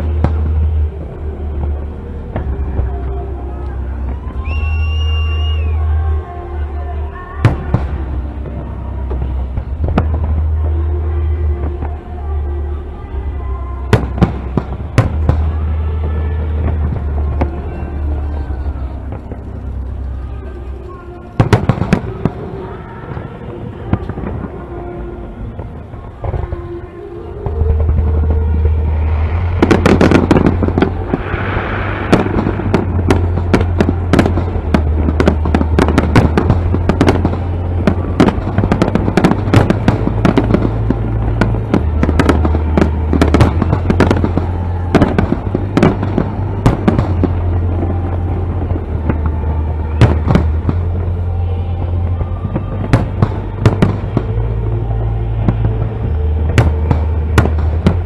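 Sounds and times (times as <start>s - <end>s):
fireworks bangs and crackles: 0.0s - 58.0s.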